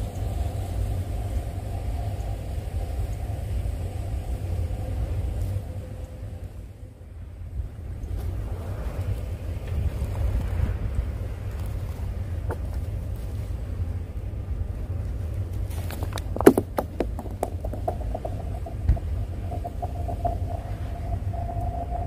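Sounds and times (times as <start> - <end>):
wind rumble on microphone: 0.0 - 22.0
stone sliding on ice with ringing hum: 15.9 - 22.0.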